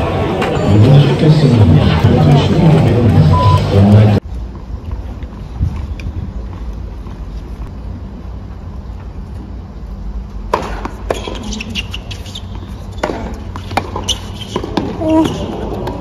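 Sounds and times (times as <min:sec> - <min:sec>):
low outdoor rumble: 0:00.0 - 0:16.0
ball bouncing on hard court: 0:10.5 - 0:16.0
racket hitting tennis ball: 0:10.5 - 0:16.0.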